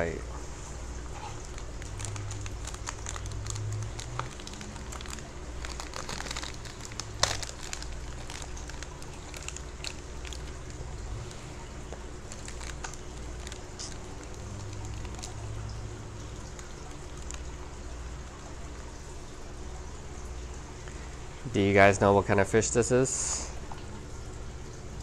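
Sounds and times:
plastic bag crinkling: 1.1s - 17.8s.

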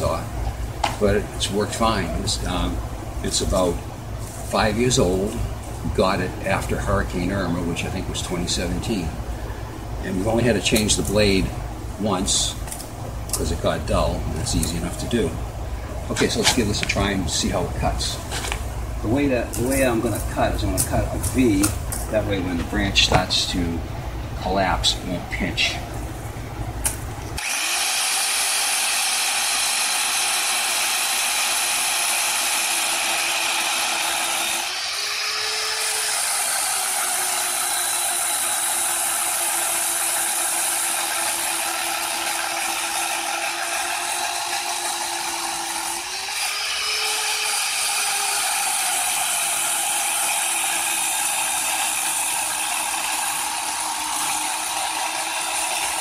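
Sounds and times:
electric chainsaw cutting branch: 12.4s - 15.2s, 16.1s - 17.1s, 19.4s - 23.6s, 26.8s - 56.0s.

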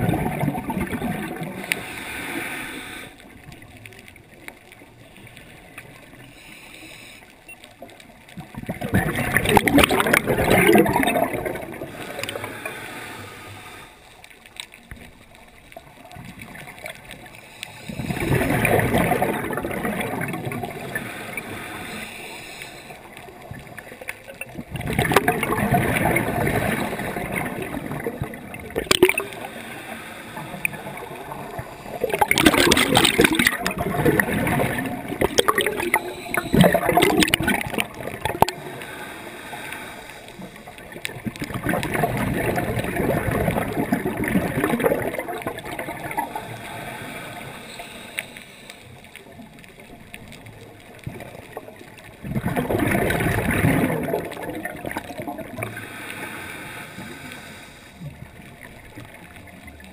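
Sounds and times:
diver exhaling bubbles underwater: 0.0s - 2.0s, 8.7s - 12.8s, 17.9s - 22.0s, 24.4s - 40.0s, 40.8s - 47.7s, 51.1s - 57.2s.

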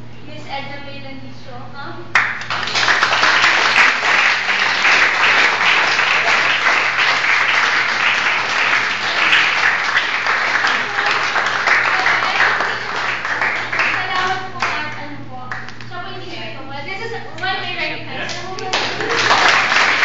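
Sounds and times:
audience applauding: 2.2s - 14.8s, 18.3s - 20.0s.

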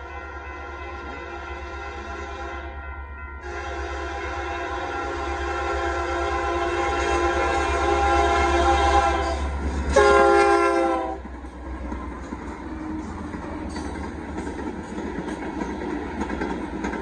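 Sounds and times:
locomotive air horn blasts: 0.0s - 2.8s, 3.4s - 11.2s
low train rumble: 0.0s - 17.0s.

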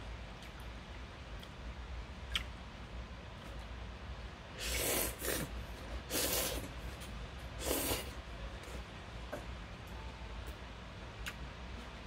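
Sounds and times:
person slurping noodles: 4.6s - 6.7s, 7.6s - 8.2s.

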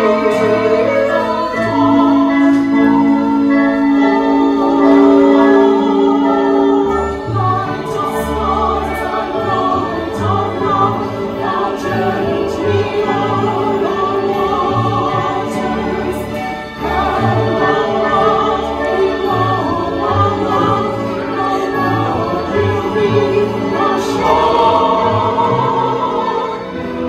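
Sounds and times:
women singing in harmony: 0.0s - 27.0s.

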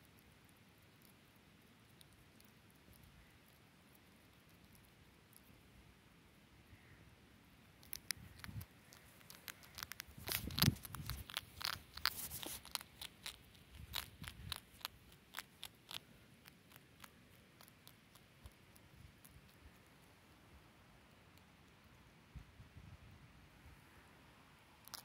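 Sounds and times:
hedgehog crunching biscuits: 0.0s - 5.7s, 7.6s - 20.2s, 24.8s - 25.0s.

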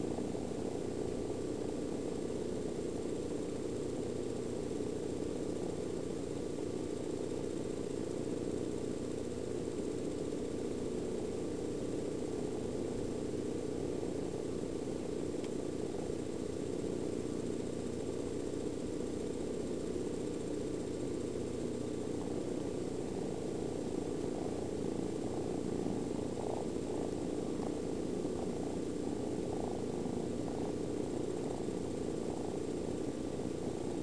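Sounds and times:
cat purring: 0.0s - 34.0s.

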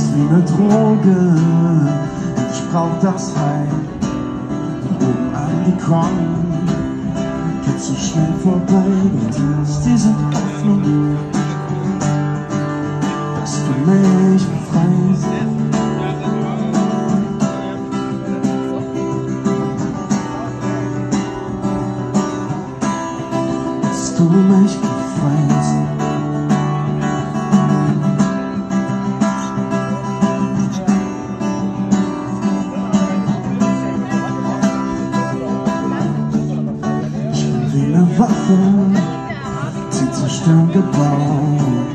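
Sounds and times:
acoustic guitar strummed: 0.0s - 41.9s.

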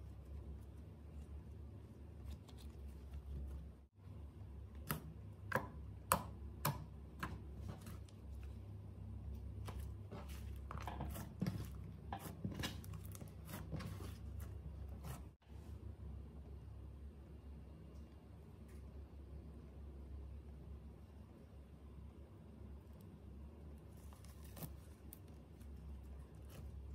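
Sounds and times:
slime squishing: 7.2s - 15.4s, 23.8s - 26.9s.

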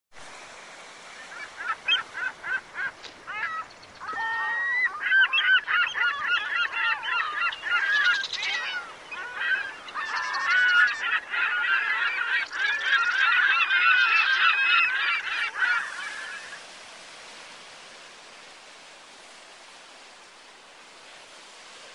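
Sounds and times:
flock of birds calling: 1.1s - 16.8s.

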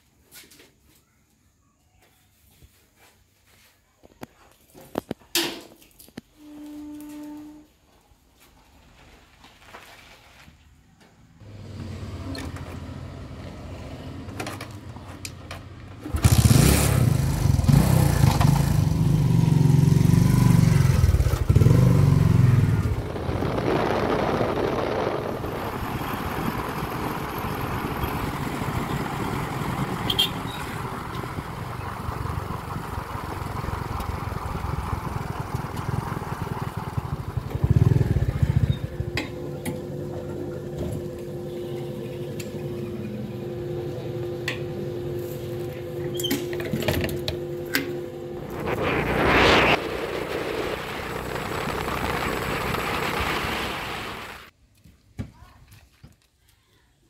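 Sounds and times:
motorcycle kick-start: 14.2s - 23.5s, 26.2s - 41.5s
motorcycle engine running: 15.8s - 54.5s.

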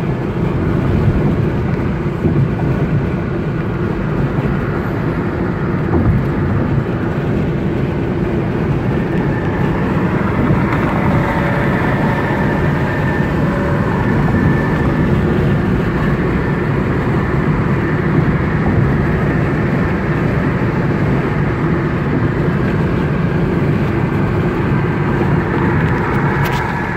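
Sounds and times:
road and tyre noise in car: 0.0s - 26.9s.

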